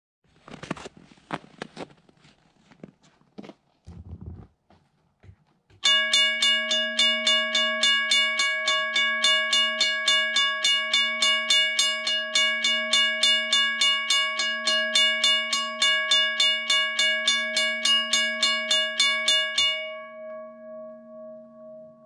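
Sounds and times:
railroad crossing bell ringing: 0:05.8 - 0:22.0.

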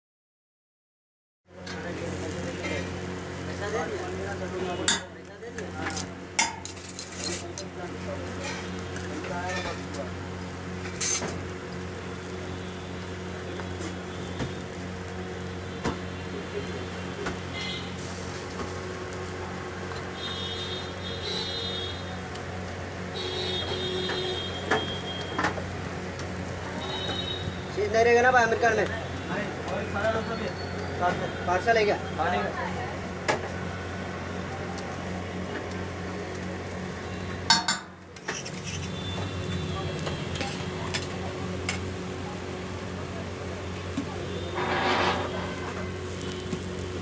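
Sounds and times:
steady sizzling: 0:01.5 - 0:47.0
metal spatula scraping a griddle: 0:05.8 - 0:07.5, 0:08.2 - 0:10.0, 0:10.8 - 0:11.4, 0:38.2 - 0:39.2, 0:44.4 - 0:45.9.

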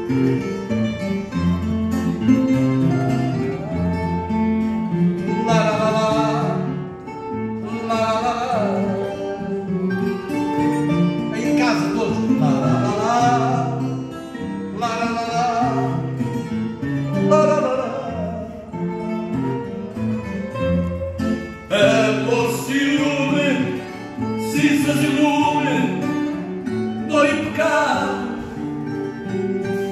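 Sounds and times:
guitar accompaniment: 0:00.0 - 0:29.9
man singing into a microphone: 0:05.3 - 0:06.8, 0:07.6 - 0:09.5, 0:11.3 - 0:13.9, 0:14.7 - 0:16.1, 0:17.2 - 0:18.6, 0:21.7 - 0:26.4, 0:27.0 - 0:28.6.

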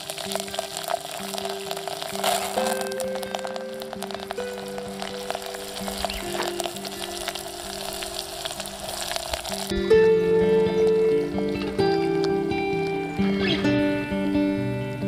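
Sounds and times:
liquid boiling with pops: 0:00.0 - 0:09.8
background music: 0:00.0 - 0:15.0.

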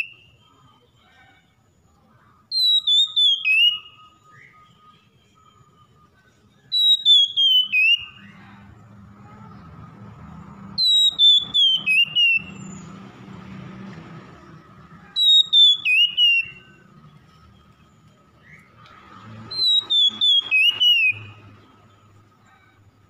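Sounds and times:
bird singing whistled phrase: 0:00.0 - 0:00.8, 0:02.5 - 0:08.3, 0:10.8 - 0:12.9, 0:15.2 - 0:16.8, 0:19.5 - 0:21.4.

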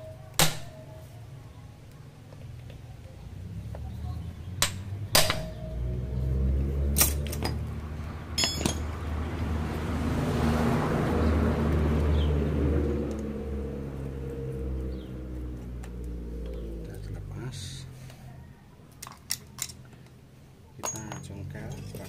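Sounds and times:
metal tools clinking on engine parts: 0:06.9 - 0:07.7, 0:08.3 - 0:09.0, 0:19.0 - 0:20.1, 0:20.8 - 0:22.0.

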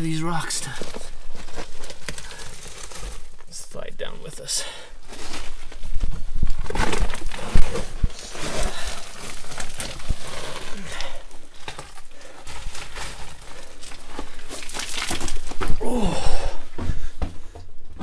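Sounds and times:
gravel crunching and scraping: 0:05.0 - 0:17.0.

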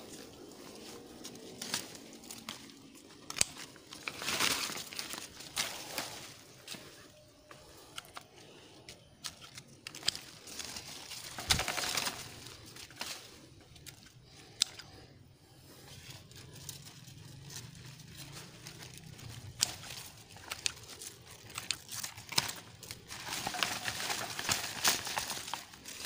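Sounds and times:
leaves rustling and crinkling: 0:00.0 - 0:26.0
pruning shears snipping: 0:01.2 - 0:06.4.

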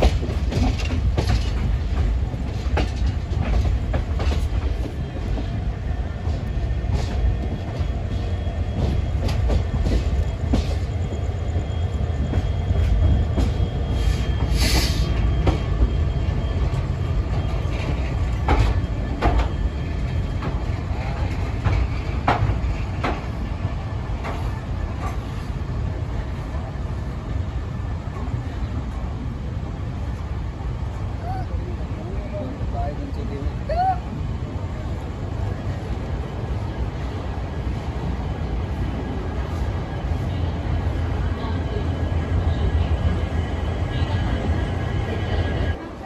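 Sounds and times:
wheels clattering over rail joints: 0:00.0 - 0:10.9, 0:17.2 - 0:25.3
train rumbling: 0:00.0 - 0:46.0.

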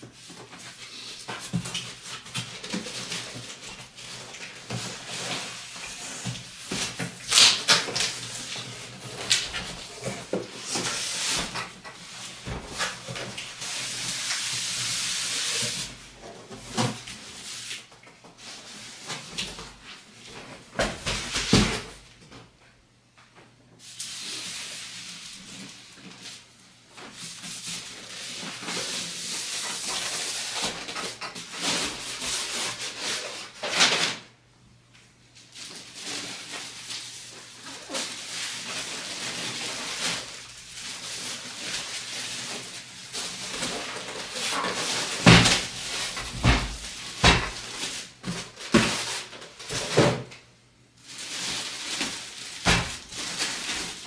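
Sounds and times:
packaging rustling: 0:35.5 - 0:50.0, 0:51.0 - 0:54.0.

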